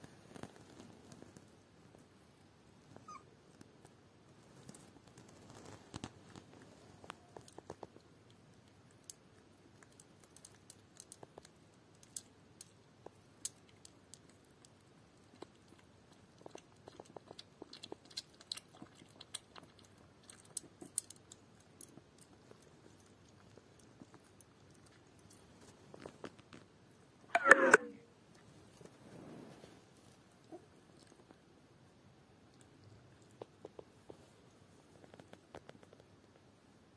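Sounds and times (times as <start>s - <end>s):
puppy lapping milk: 13.0s - 26.2s.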